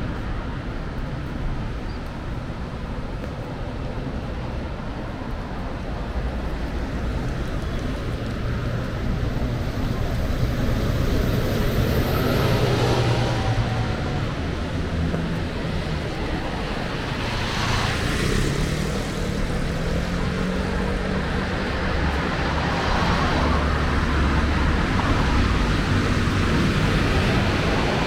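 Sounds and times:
vehicle passing by: 9.4s - 28.0s.

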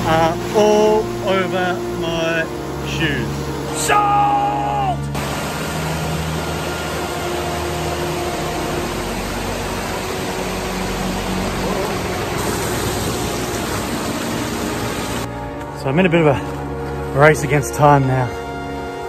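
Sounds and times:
creek rushing over rocks: 5.0s - 15.3s.

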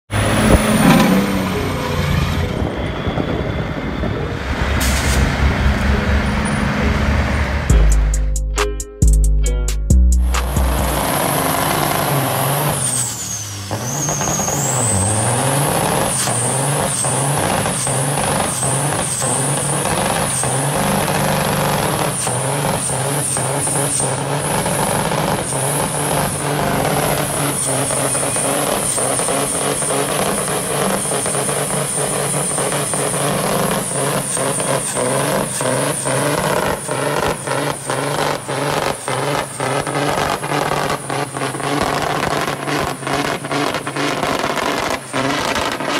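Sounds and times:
diesel truck engine revving high: 0.0s - 8.4s, 10.2s - 45.9s
high warbling whine: 0.1s - 8.4s
sharp exhaust cracks: 10.2s - 45.9s.

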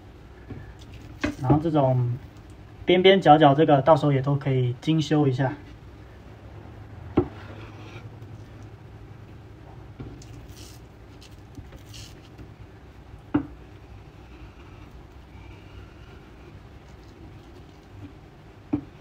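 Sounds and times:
knife scraping hiss: 10.4s - 12.3s.

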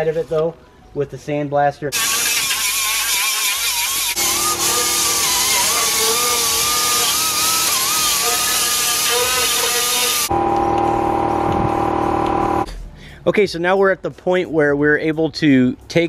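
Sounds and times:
die grinder grinding metal: 2.0s - 12.7s.

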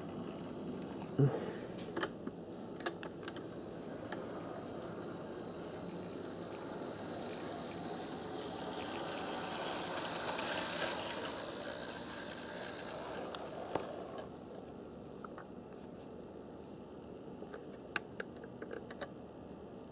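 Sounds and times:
model train rattling on track: 3.8s - 14.3s.

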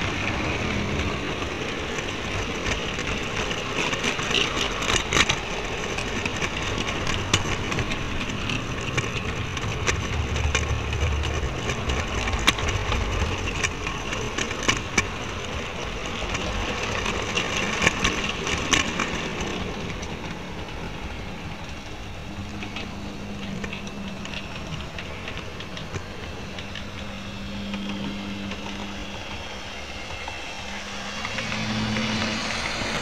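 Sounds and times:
low hum: 0.0s - 33.0s
model train rattling on track: 0.0s - 33.0s.

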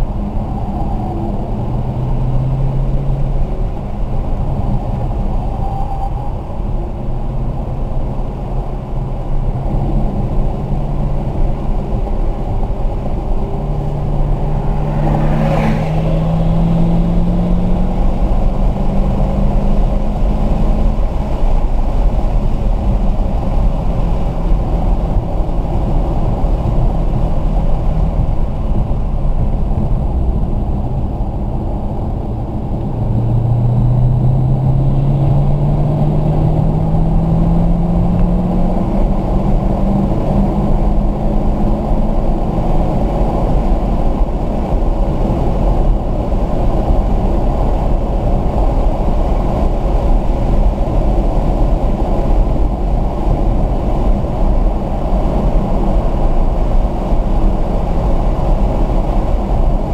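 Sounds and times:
car engine accelerating: 0.0s - 59.9s
road and wind noise: 0.0s - 59.9s.

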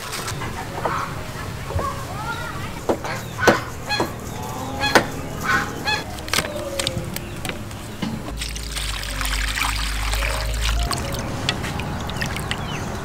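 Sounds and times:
domestic fowl calling: 3.0s - 7.4s
water pouring into a pot: 8.3s - 12.7s.

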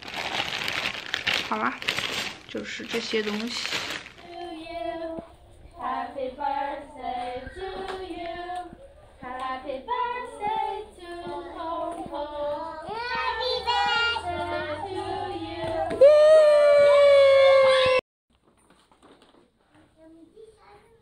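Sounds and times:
children and women singing: 4.2s - 16.2s.

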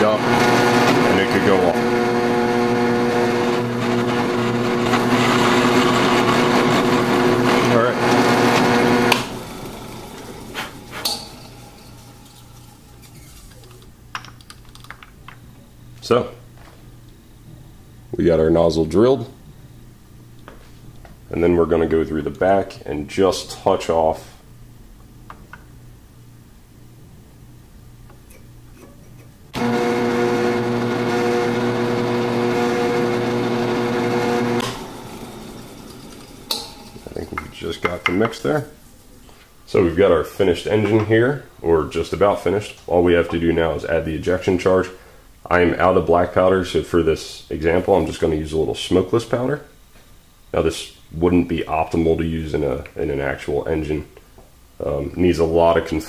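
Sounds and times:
drill press motor humming: 0.2s - 13.9s, 29.5s - 37.6s.

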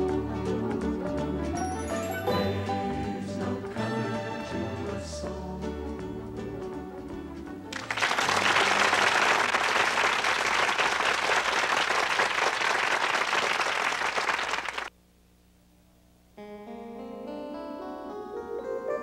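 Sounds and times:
song ending: 0.0s - 7.1s
music: 0.0s - 9.5s, 16.4s - 19.0s
audience applauding: 7.7s - 14.9s.

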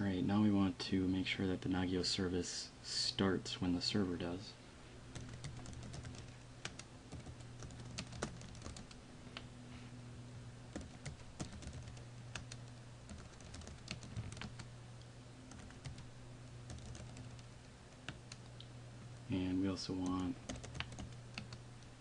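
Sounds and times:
low steady hum: 0.0s - 22.0s
keyboard typing clicks: 5.2s - 9.5s, 10.7s - 14.7s, 15.5s - 16.1s, 16.7s - 18.6s, 20.0s - 21.6s.

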